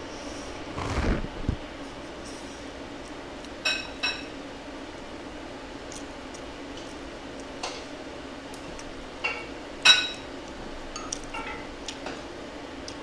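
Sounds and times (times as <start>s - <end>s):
faint steady hum: 0.0s - 13.0s
utensils clinking against dishes: 3.6s - 4.3s, 9.2s - 10.3s, 10.9s - 12.2s.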